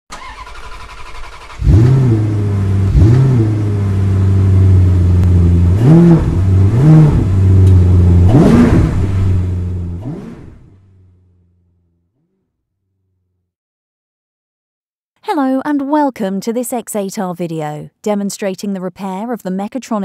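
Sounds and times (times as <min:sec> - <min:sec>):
car engine idling and revving: 0:00.1 - 0:13.4.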